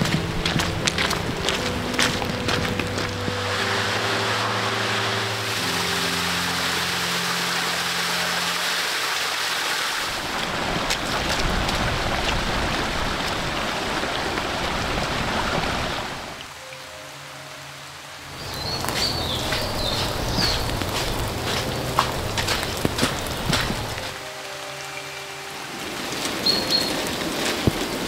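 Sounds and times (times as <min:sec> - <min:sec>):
wind rumble on microphone: 0:00.0 - 0:03.6, 0:10.1 - 0:16.4, 0:18.4 - 0:24.2
low ambient drone notes: 0:00.0 - 0:12.0, 0:16.4 - 0:28.0.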